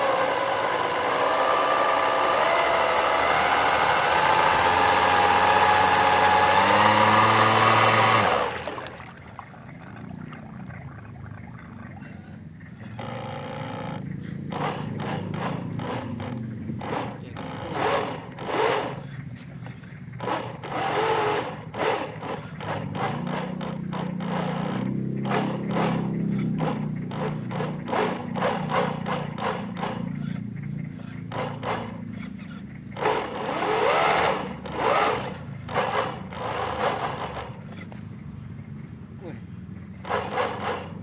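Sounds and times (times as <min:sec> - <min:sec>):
electric motor drone: 0:00.0 - 0:10.6, 0:12.8 - 0:19.4, 0:20.1 - 0:38.0, 0:40.0 - 0:41.0
water rushing bursts: 0:00.0 - 0:30.5, 0:40.0 - 0:41.0.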